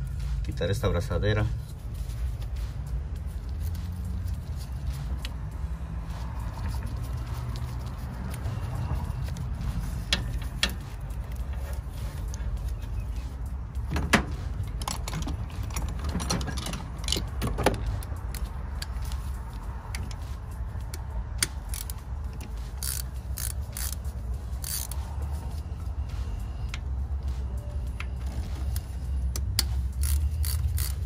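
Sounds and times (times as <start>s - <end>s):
metal tools and fasteners clinking: 6.4s - 31.0s.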